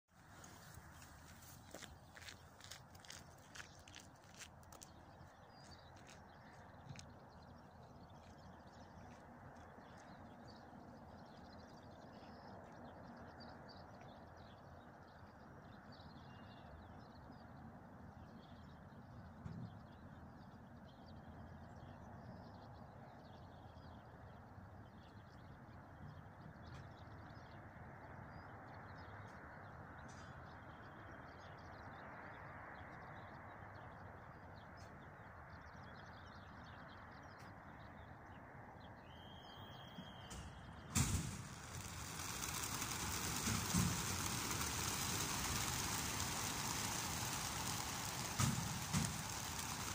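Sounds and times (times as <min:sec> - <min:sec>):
small birds chirping: 0:00.2 - 0:49.9
steady low hiss: 0:40.8 - 0:49.9.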